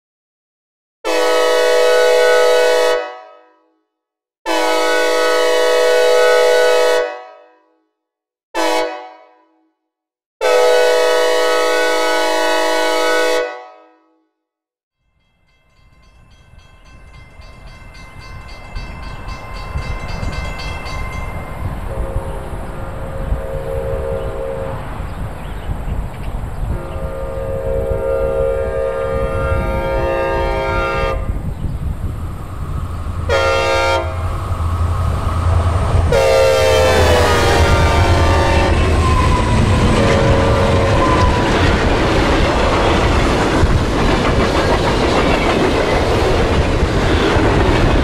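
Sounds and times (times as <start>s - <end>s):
locomotive air horn blasts: 1.0s - 3.8s, 4.5s - 7.8s, 8.6s - 9.5s, 10.4s - 14.2s, 21.9s - 24.8s, 26.7s - 31.4s, 33.2s - 34.5s, 36.1s - 41.5s
rumble of approaching train: 15.0s - 48.0s.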